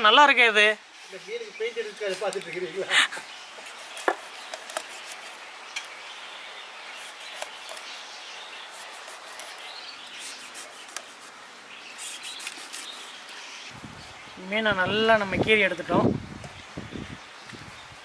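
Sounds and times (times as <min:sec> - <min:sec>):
steady background hiss: 0:00.0 - 0:18.0
knife scraping fish: 0:08.7 - 0:11.4, 0:12.0 - 0:13.2.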